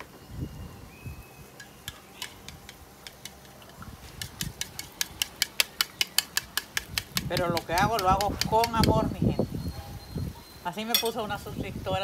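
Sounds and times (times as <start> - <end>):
fork beating eggs in a bowl: 1.8 - 9.1.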